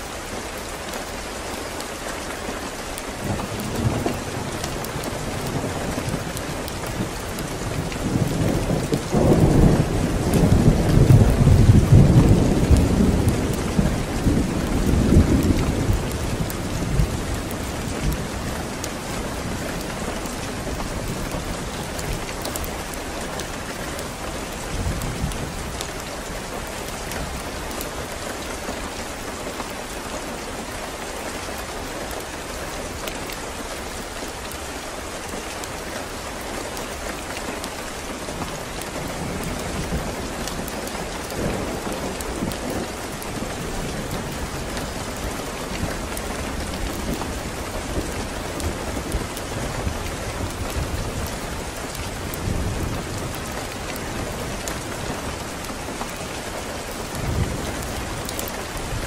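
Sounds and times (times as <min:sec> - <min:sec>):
heavy rain: 0:00.0 - 0:59.0
rain drop ticks: 0:02.8 - 0:29.8, 0:30.9 - 0:59.0
low thunder rumbling: 0:03.2 - 0:23.0.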